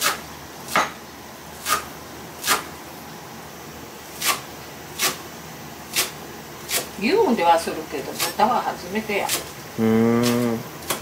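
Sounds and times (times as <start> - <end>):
knife cutting on wooden board: 1.6 - 2.7, 4.2 - 4.4, 5.0 - 5.2, 5.9 - 6.9.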